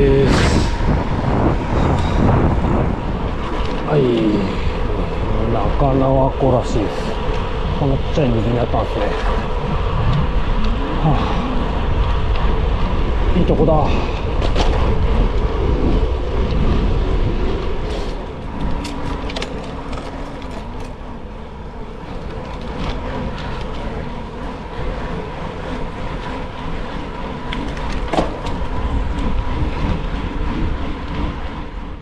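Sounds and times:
tyre and wind rumble: 0.0 - 32.0.

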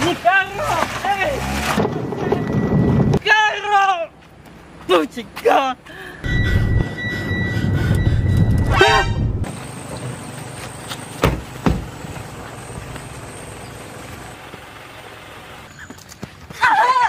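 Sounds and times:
car horn toot: 6.3 - 9.5
car engine running loud: 9.4 - 15.7
sharp knocks: 11.2 - 11.9.

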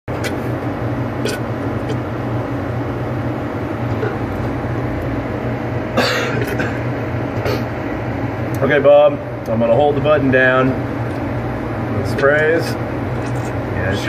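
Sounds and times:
low mechanical hum: 0.1 - 14.0.

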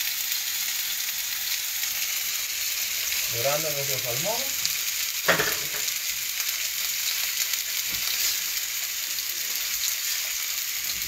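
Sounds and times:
fish sizzling in frying pan: 0.0 - 11.0.

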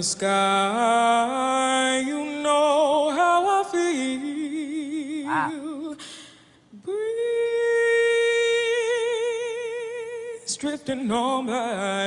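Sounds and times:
woman singing unaccompanied: 3.6 - 5.9
woman taking a breath: 6.0 - 6.6.

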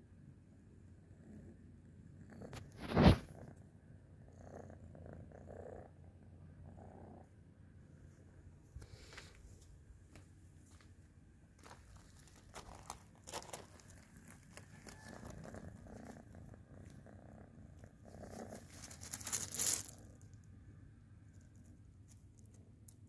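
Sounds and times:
low steady rumble: 3.3 - 23.0
dry grass rustling: 11.6 - 16.2, 18.2 - 20.2.

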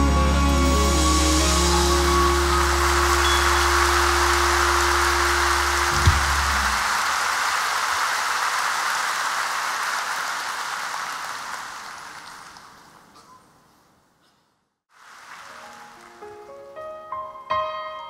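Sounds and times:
audience applauding: 1.7 - 13.2, 15.0 - 16.2.

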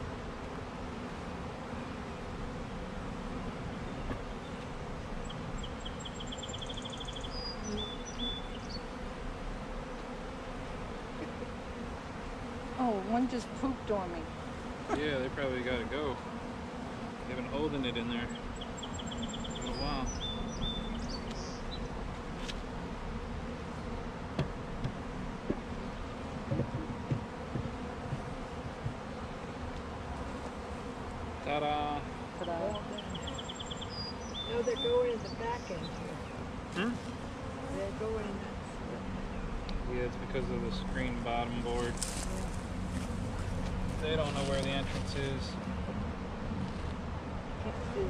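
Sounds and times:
honeybees buzzing: 0.0 - 48.0
wooden lid knocks: 26.5 - 29.0.

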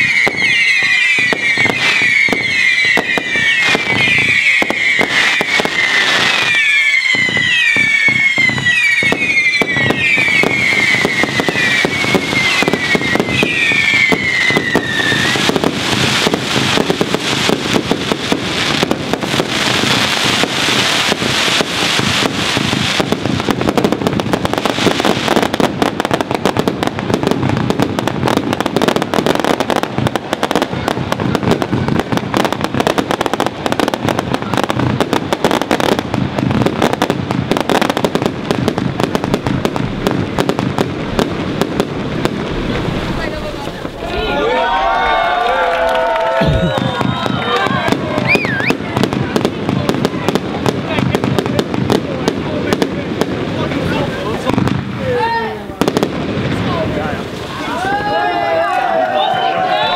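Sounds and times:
falling firework whistles: 0.0 - 23.1, 42.6 - 49.2
fireworks bursting: 0.0 - 59.9.

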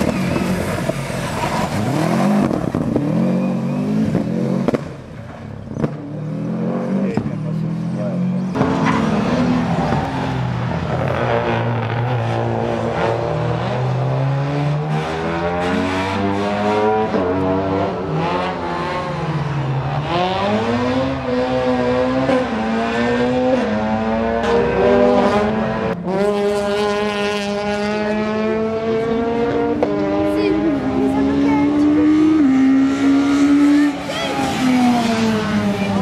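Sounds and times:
rally car engine revving: 0.0 - 36.0.

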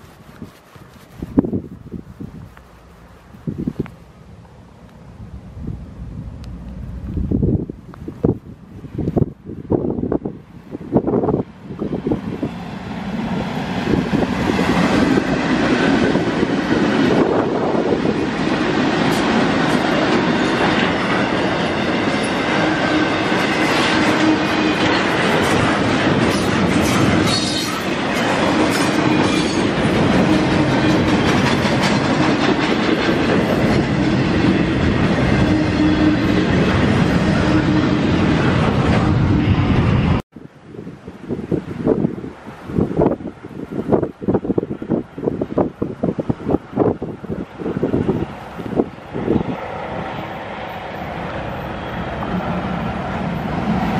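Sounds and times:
wheels clacking over rail joints: 14.2 - 37.2.

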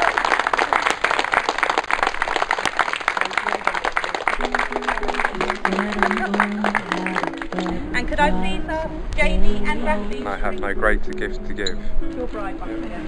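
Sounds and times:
crowd applauding: 0.0 - 7.9
music of slow low notes: 4.4 - 13.0.

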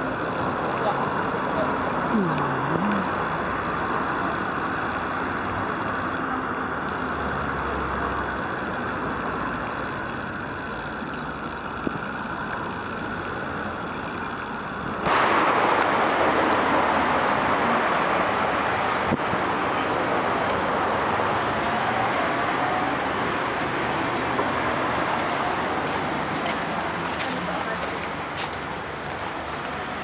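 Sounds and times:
road traffic: 0.0 - 30.0
loud rushing noise: 15.0 - 26.4.

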